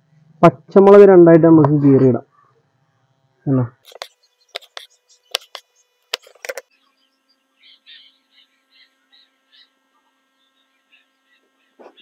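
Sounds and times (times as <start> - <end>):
faint steady hum: 0.0 - 12.0
soft high chirps: 3.9 - 11.4.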